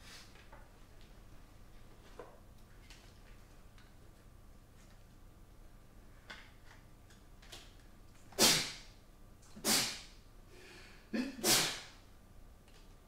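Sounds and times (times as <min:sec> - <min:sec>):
man coughing: 0:11.1 - 0:11.8.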